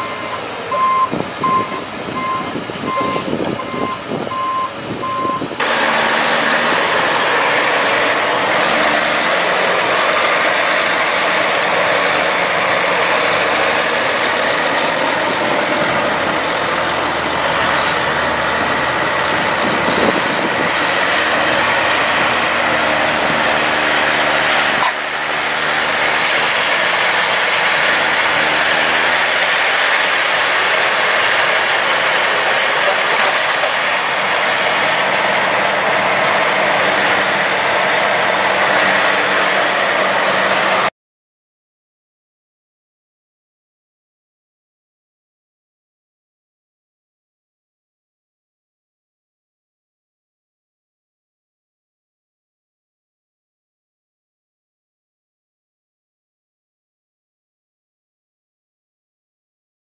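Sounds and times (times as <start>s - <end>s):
tractor diesel engines under load: 0.0s - 40.9s.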